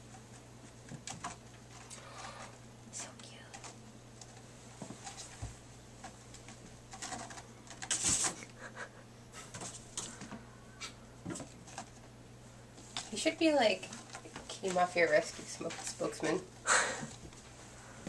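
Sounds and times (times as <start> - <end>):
cat claws scratching: 6.0 - 8.5.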